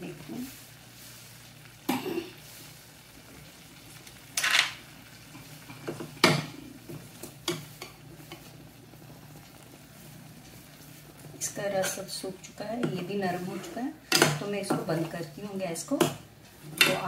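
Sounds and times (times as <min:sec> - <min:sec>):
spoon scraping pan: 0:04.4 - 0:08.6, 0:11.7 - 0:17.0.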